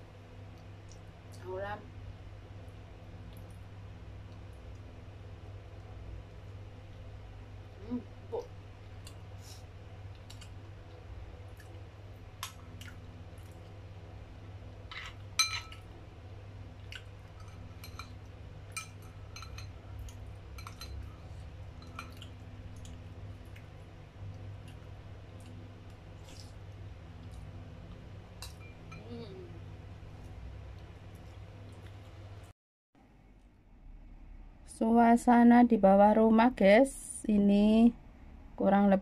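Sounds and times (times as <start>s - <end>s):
low steady hum: 0.0s - 39.0s
spoon clinking on porcelain bowl: 15.0s - 15.8s, 17.4s - 19.8s, 20.5s - 21.0s.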